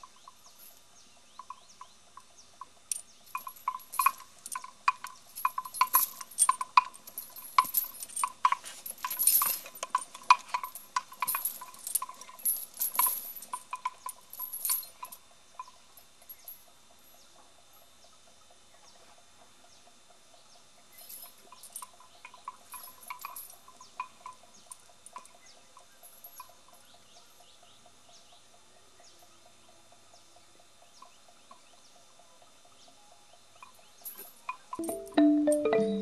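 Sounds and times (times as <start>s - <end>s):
faint steady hum: 0.0s - 36.0s
metal chain clinking: 1.4s - 16.7s, 21.0s - 25.4s, 26.0s - 26.9s, 33.6s - 36.0s.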